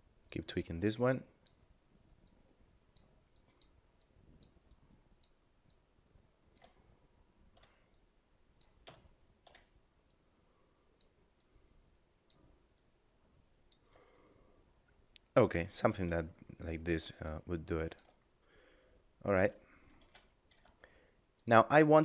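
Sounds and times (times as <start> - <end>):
computer mouse clicks: 2.2 - 5.8, 6.5 - 6.9, 7.5 - 10.2, 11.0 - 11.6, 13.7 - 14.0, 19.9 - 20.8.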